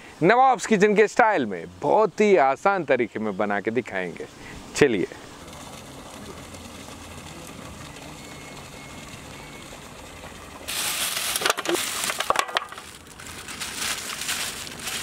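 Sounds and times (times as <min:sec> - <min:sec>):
plastic bag crinkling: 0:10.7 - 0:15.0
wet meat crushing and crackling: 0:10.7 - 0:15.0.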